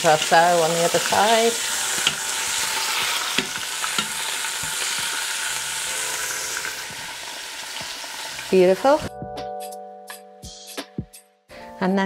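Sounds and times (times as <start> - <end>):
chicken sizzling in oil: 0.0 - 9.1.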